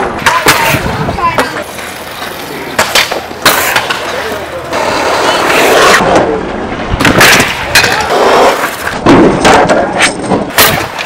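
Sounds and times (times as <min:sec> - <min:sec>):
scooter wheels rolling on concrete: 0:00.0 - 0:11.0.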